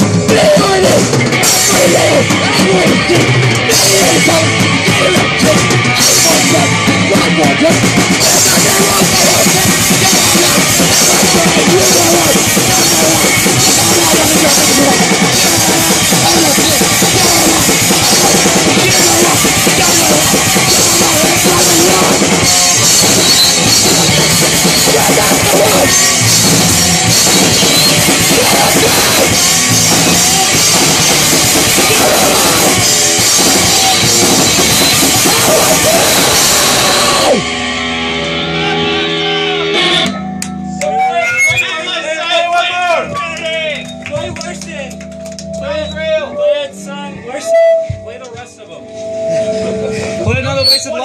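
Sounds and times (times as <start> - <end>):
punk band playing live: 0.0 - 51.0.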